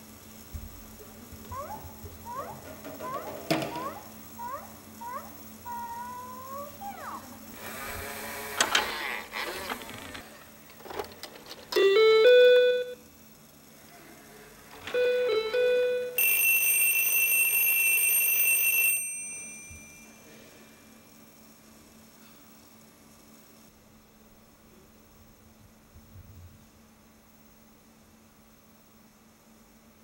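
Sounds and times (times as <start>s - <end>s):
clattering and clicks: 8.6s - 11.8s
high electronic alarm tone: 11.8s - 13.0s, 14.9s - 19.1s.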